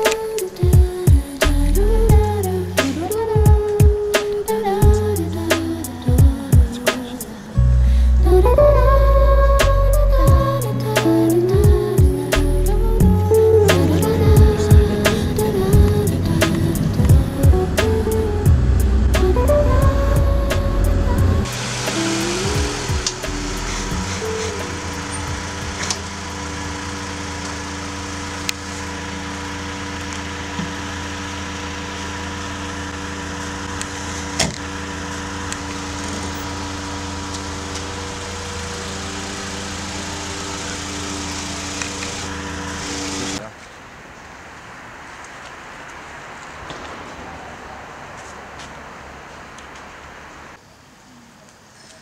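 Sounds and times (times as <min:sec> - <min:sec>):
background hiss: 0:00.0 - 0:29.9
car engine idling: 0:00.0 - 0:43.4.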